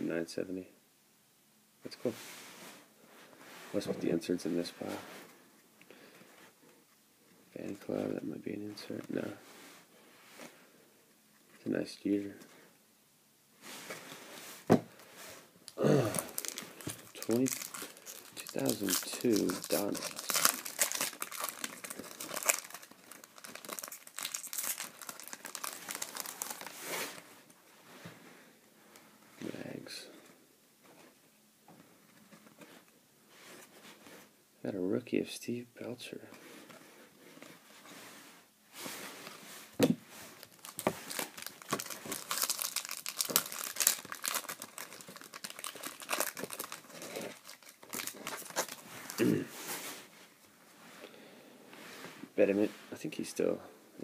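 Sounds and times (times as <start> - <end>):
foil wrapper crinkling: 16.1 - 27.2, 40.4 - 49.3.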